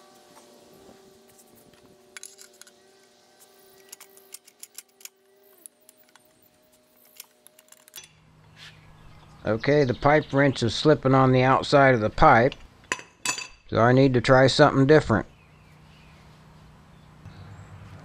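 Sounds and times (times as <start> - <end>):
wrench clinking on metal pipe: 12.9 - 13.6.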